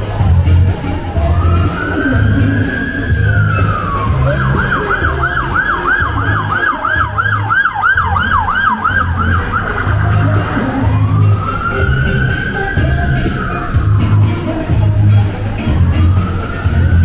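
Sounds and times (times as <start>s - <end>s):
emergency siren wailing and yelping: 0.7s - 17.0s.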